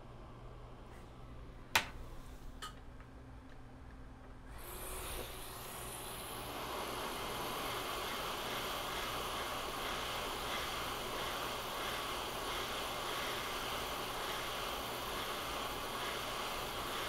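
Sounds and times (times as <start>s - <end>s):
hot air station hissing: 4.5s - 17.0s.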